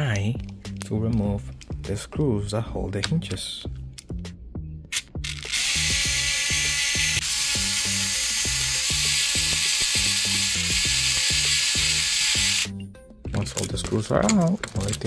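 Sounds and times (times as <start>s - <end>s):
background music with steady beat: 0.0s - 15.0s
electric screwdriver running: 5.2s - 12.8s.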